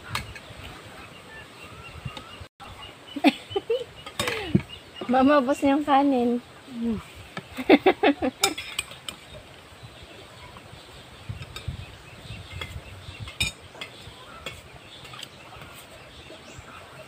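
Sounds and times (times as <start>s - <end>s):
cutlery scraping and clinking plates: 8.4s - 9.3s, 12.5s - 15.9s.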